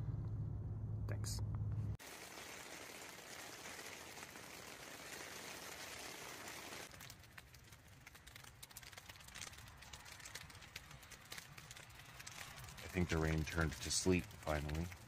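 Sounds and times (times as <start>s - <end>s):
rain hissing on a tent: 2.0s - 15.0s
sleet ticking on tent fabric: 2.0s - 15.0s.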